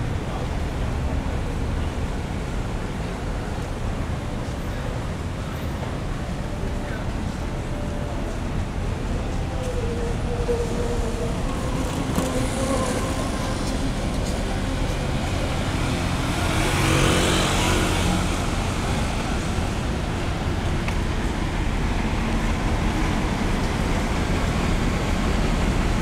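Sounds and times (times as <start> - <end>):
steady traffic hum: 0.0 - 26.0.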